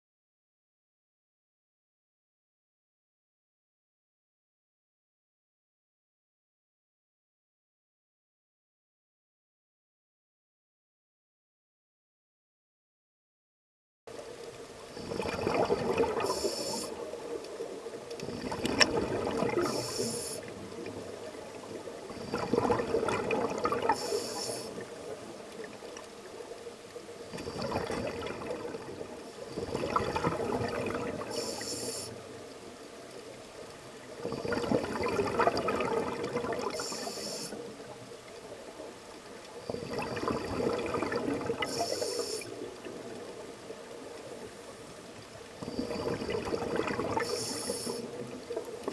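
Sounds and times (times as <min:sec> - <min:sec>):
exhaled bubbles rumbling: 0:14.2 - 0:31.6, 0:32.2 - 0:44.5, 0:45.2 - 0:48.9
demand valve hiss: 0:16.3 - 0:17.0, 0:19.6 - 0:20.5, 0:24.0 - 0:24.8, 0:31.3 - 0:32.2, 0:36.8 - 0:37.6, 0:41.7 - 0:42.6, 0:47.2 - 0:48.2.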